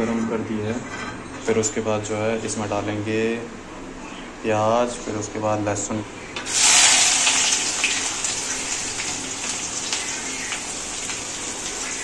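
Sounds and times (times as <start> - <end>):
hot oil sizzling: 6.4 - 12.0.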